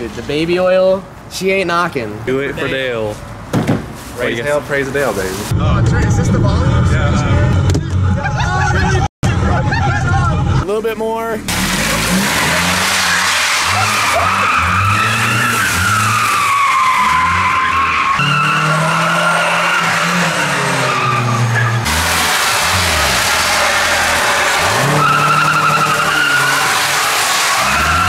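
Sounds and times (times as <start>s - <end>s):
metal scraping on asphalt: 11.4s - 28.0s
car engine revving hard: 11.5s - 16.4s, 17.0s - 28.0s.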